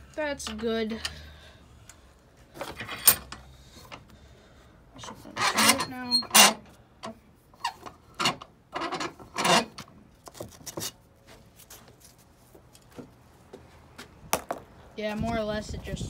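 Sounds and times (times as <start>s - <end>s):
vise handle scraping: 2.6s - 4.1s, 5.0s - 6.6s.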